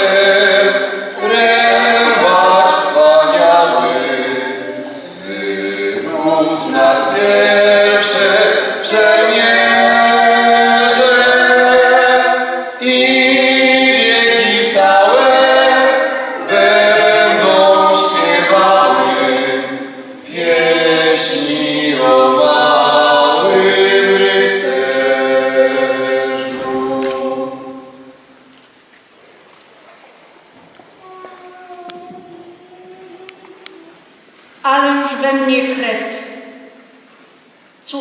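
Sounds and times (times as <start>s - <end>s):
choir singing slow song: 0.0s - 28.5s.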